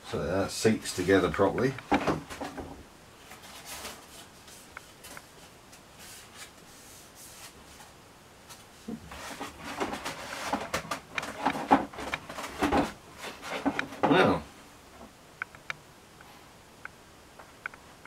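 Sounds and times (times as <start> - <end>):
handling foam parts and packaging: 0.9 - 14.4.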